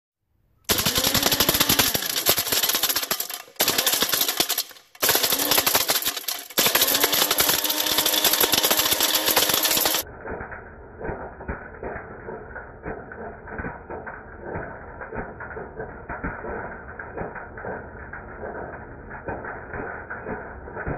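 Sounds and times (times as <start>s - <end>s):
blender motor running: 0.7s - 10.0s
plastic pieces clattering in cup: 0.7s - 10.0s.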